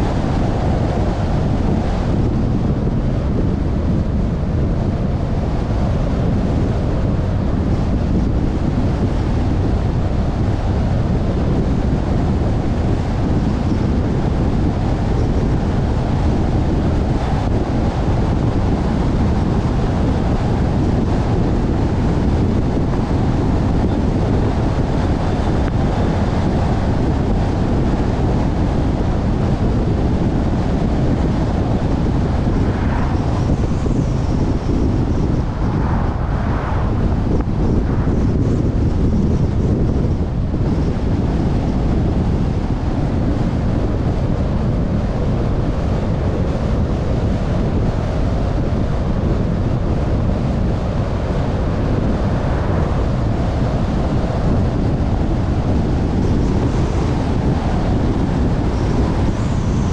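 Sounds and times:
car tyres on road: 0:00.0 - 0:59.9
wind on microphone: 0:00.0 - 0:59.9.

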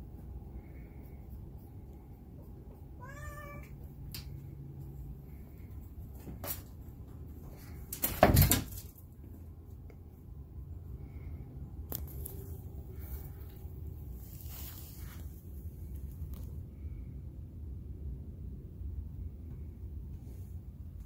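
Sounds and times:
cat meowing: 0:03.0 - 0:03.8.

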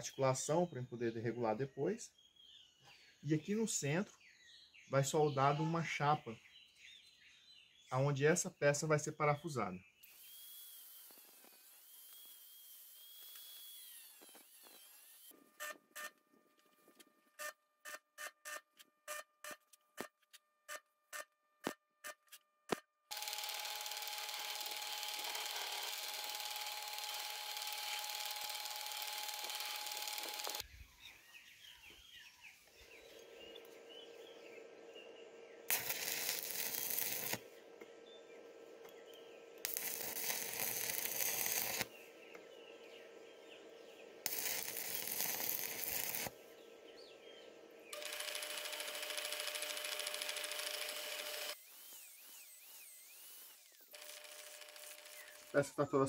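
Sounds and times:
stick arc welding: 0:10.0 - 0:15.4, 0:23.1 - 0:30.6, 0:35.7 - 0:37.5, 0:39.6 - 0:42.0, 0:44.2 - 0:46.4, 0:47.9 - 0:55.8
metal lathe spinning: 0:23.1 - 0:30.6, 0:48.0 - 0:51.6.

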